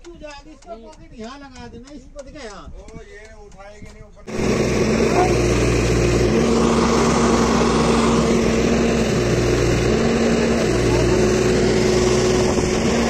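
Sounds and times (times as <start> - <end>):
diesel engine under load: 4.3 - 13.0
other heavy engines running: 4.3 - 13.0.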